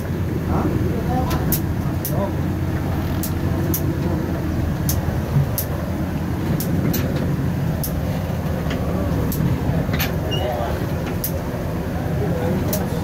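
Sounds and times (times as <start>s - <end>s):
low rumble inside boat cabin: 0.0s - 13.0s
sharp high ticks: 7.8s - 8.0s.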